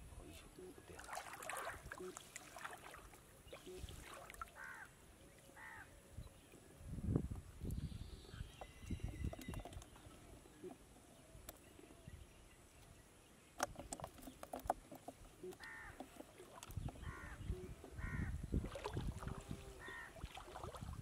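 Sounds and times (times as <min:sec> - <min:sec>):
soft water splashes and drips: 0:00.8 - 0:05.5, 0:15.4 - 0:17.2, 0:18.5 - 0:21.0
bird calling: 0:15.2 - 0:18.4, 0:19.6 - 0:20.3.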